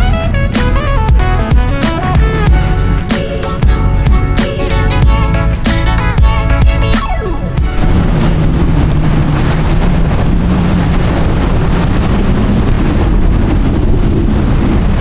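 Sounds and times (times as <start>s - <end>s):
wind buffeting microphone: 7.5s - 15.0s
surf washing onto beach: 7.6s - 15.0s.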